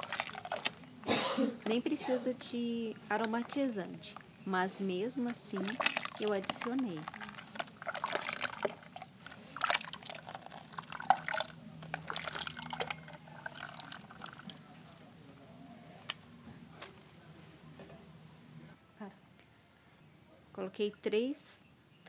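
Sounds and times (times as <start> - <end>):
liquid dripping: 0.0 - 0.9, 5.0 - 15.1
liquid splashing in a bucket: 0.0 - 0.9, 5.2 - 15.0.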